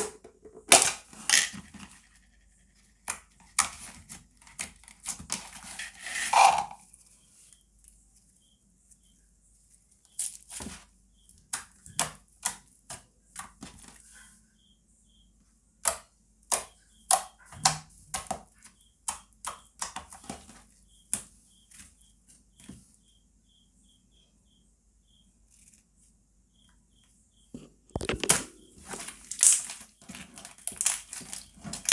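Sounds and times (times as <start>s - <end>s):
slime squelching: 27.9s - 31.9s
slime sticky clicks and pops: 28.0s - 28.5s.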